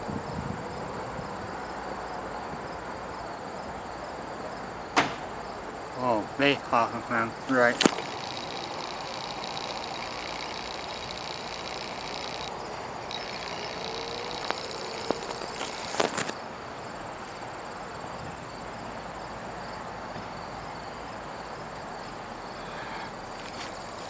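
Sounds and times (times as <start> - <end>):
insects chirping: 0.0 - 24.0
soft outdoor hiss: 0.0 - 24.0
sharp clicks: 7.5 - 16.4.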